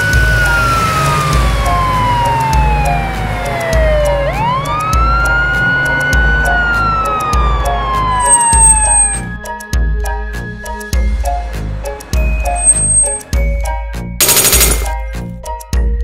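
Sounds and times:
police siren wailing: 0.0s - 9.3s.

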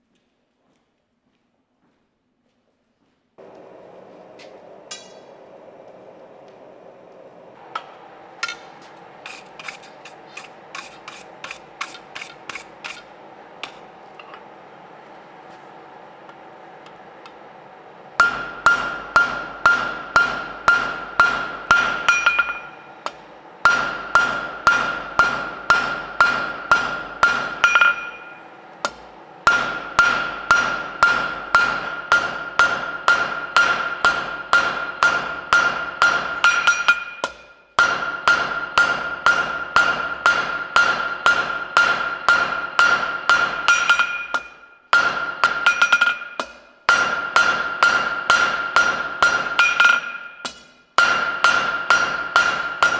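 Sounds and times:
hammer striking anvil: 4.4s - 5.8s, 7.7s - 14.5s, 18.2s - 52.9s.

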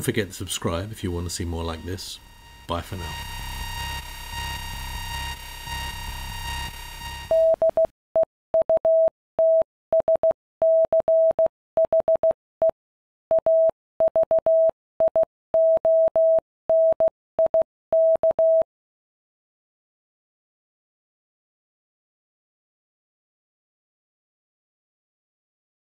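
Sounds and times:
radio interference hum and whine: 0.0s - 7.4s
morse code tone: 0.8s - 12.3s.

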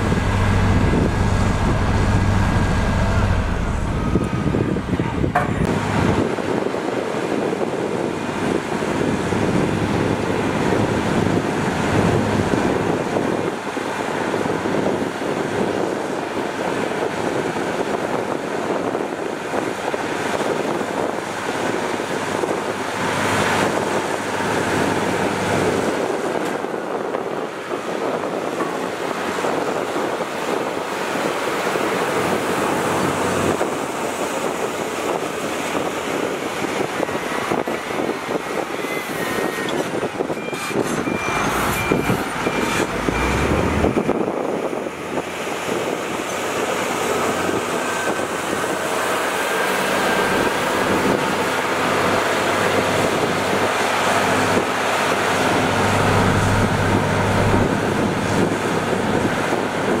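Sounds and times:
heavy diesel machines running: 0.0s - 60.0s
high beeps: 40.4s - 42.9s.

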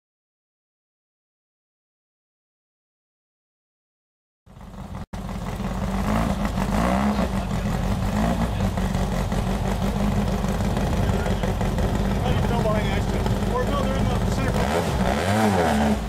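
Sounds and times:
buggy engine at low revs: 4.5s - 16.0s.

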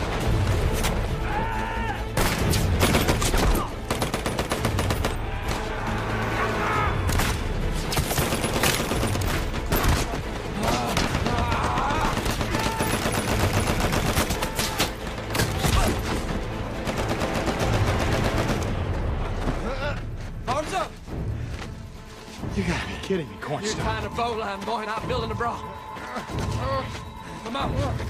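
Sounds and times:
rifle and automatic gunfire: 11.0s - 14.4s.

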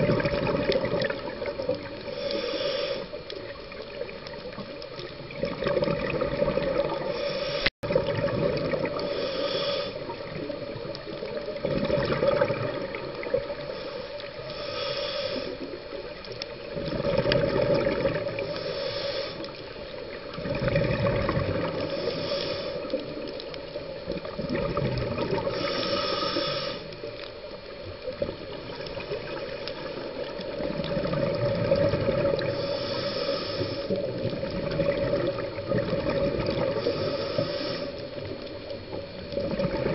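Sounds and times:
exhaled bubbles rushing: 0.0s - 2.1s, 3.8s - 7.2s, 7.8s - 9.1s, 10.0s - 13.7s, 16.6s - 18.6s, 20.2s - 22.0s, 23.1s - 25.6s, 28.2s - 32.6s, 34.0s - 37.1s, 38.2s - 39.9s
regulator air hiss: 1.8s - 3.6s, 7.0s - 7.7s, 9.0s - 10.3s, 13.5s - 16.0s, 18.3s - 20.4s, 21.8s - 23.8s, 25.4s - 27.5s, 32.4s - 34.2s, 36.7s - 39.2s.

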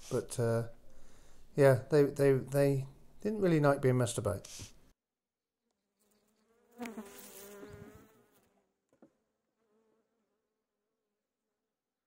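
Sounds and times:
honeybees buzzing: 6.1s - 8.5s.

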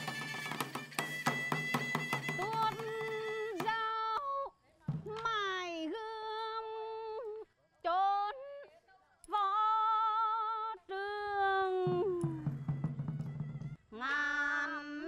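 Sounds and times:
woman singing: 2.4s - 12.6s, 13.9s - 15.0s.

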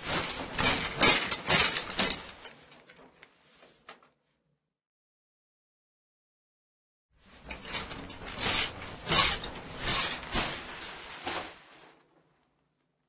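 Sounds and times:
shower curtain rings scraping: 0.0s - 2.5s, 7.2s - 11.6s
curtain fabric rustling: 0.0s - 3.8s, 7.2s - 12.6s.

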